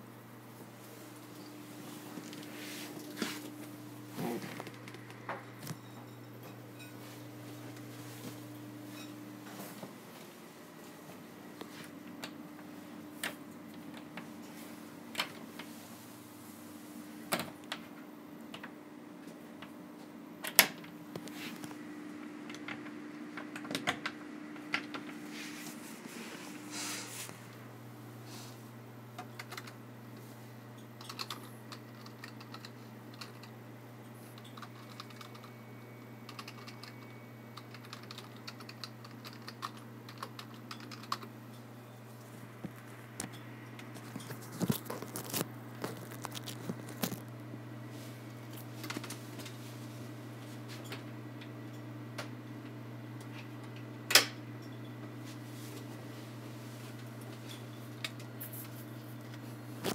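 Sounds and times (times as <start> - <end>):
steady low hum: 0.0 - 59.9
typing on computer keyboard: 29.3 - 29.8, 31.0 - 33.5, 34.4 - 35.5, 36.3 - 41.3.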